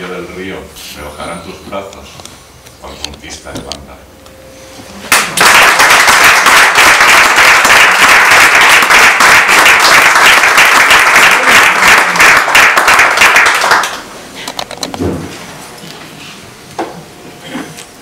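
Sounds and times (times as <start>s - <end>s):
audience applauding: 5.1s - 14.1s.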